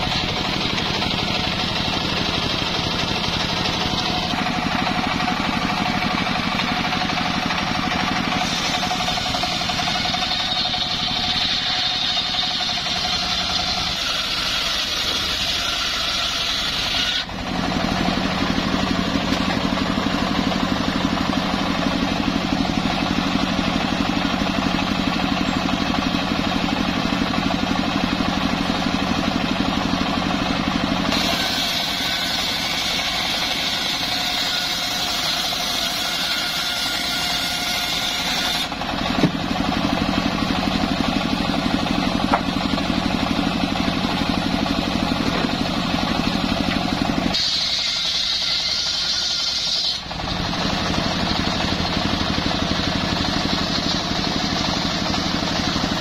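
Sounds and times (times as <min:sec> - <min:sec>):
engine humming: 0:00.0 - 0:15.6, 0:16.8 - 0:31.3, 0:38.6 - 0:47.4, 0:50.0 - 0:56.0
saw blade ripping wood: 0:00.0 - 0:27.6, 0:31.0 - 0:56.0.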